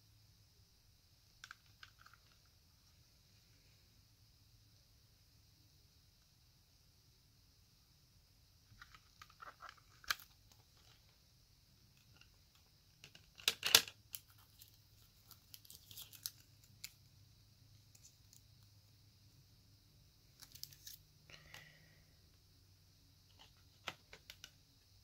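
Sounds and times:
plastic wrap and paper crinkling: 0:14.1 - 0:17.0.

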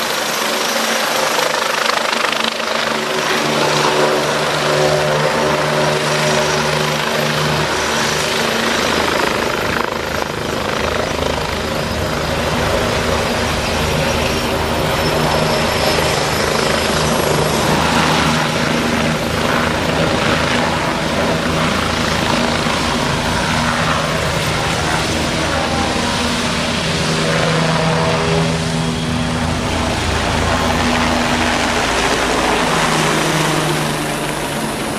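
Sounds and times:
helicopter rotor and engines: 0:00.0 - 0:34.9.

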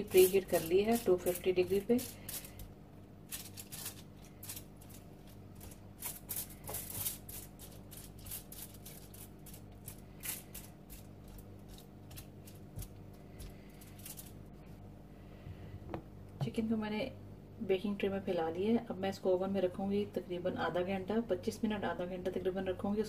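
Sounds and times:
foil crinkling: 0:00.0 - 0:14.4
faint steady hum: 0:00.0 - 0:23.0.

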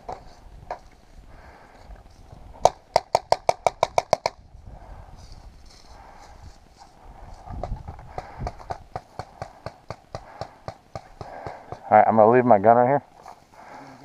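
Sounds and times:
paintball marker firing burst: 0:02.6 - 0:04.4.

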